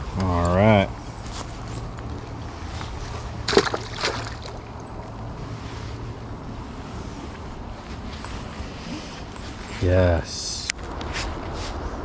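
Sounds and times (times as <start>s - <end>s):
flowing creek water: 3.0s - 5.5s.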